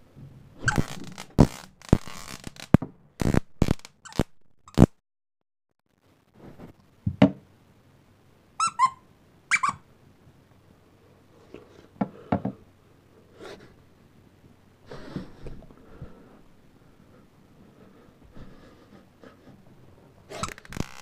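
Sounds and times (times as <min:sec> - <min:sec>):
plush toy squeaker: 0:08.6 - 0:09.8, 0:20.3 - 0:21.0.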